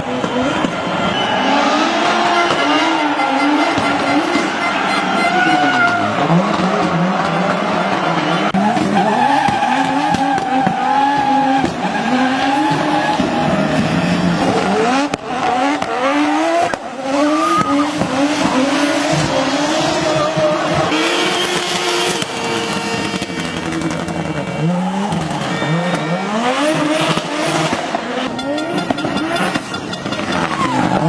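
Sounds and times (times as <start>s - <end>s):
rally car engine revving: 0.0s - 31.0s.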